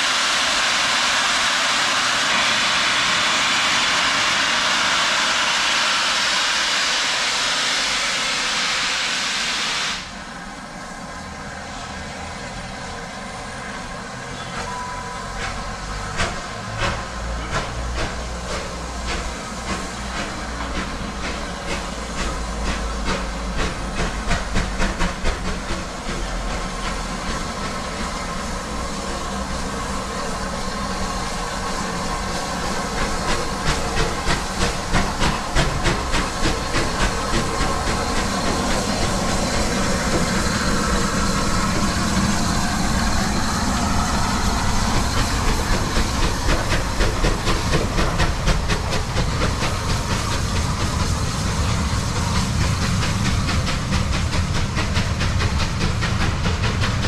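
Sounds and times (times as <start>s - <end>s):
loud hiss of steam: 0.0s - 57.0s
low rumble of train: 0.0s - 57.0s
steam locomotive exhaust beats: 0.0s - 57.0s.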